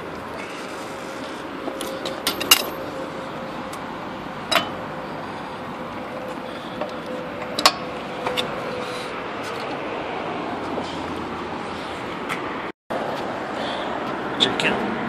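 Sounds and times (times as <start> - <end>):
metallic clicks and clinks: 1.8 - 2.8.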